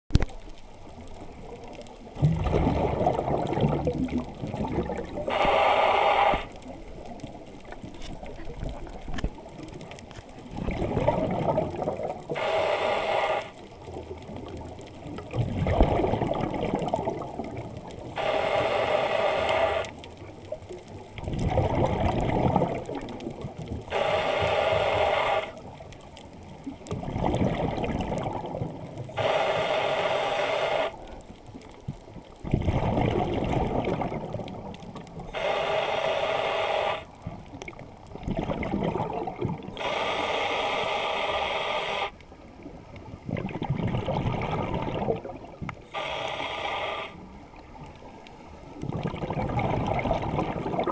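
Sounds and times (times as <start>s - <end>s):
gurgling exhaled bubbles: 0.9s - 31.1s, 32.0s - 40.1s, 42.0s - 50.9s
regulator hissing inhale: 5.3s - 6.6s, 12.3s - 13.6s, 18.1s - 19.9s, 23.9s - 25.6s, 29.2s - 31.0s, 35.3s - 37.1s, 39.8s - 42.2s, 45.8s - 47.3s.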